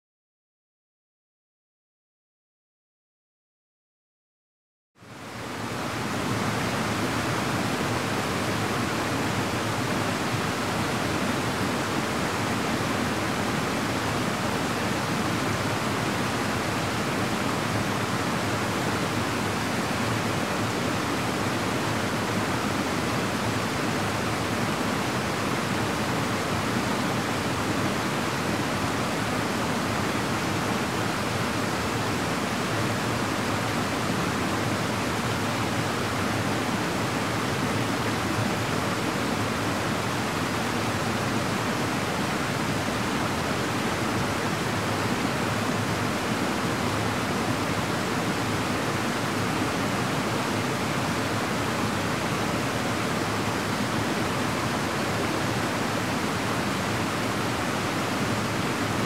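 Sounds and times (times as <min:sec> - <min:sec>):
stream and waterfall rushing: 0:05.0 - 0:59.0.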